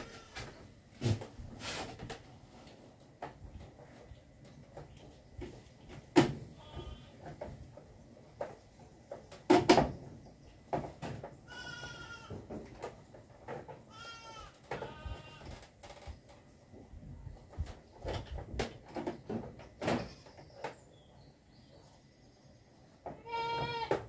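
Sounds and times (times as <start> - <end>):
goat bleating: 11.5 - 12.3, 13.9 - 15.5, 23.2 - 24.0.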